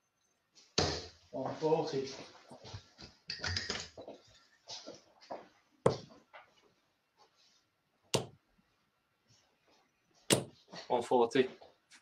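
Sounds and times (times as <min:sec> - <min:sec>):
darts striking a dartboard: 0:08.2 - 0:08.4, 0:10.3 - 0:10.6.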